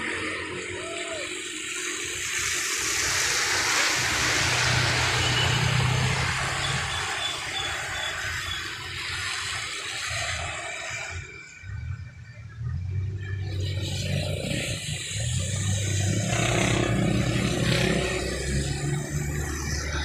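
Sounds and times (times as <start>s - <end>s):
tyres hissing on wet road: 0.0s - 20.0s.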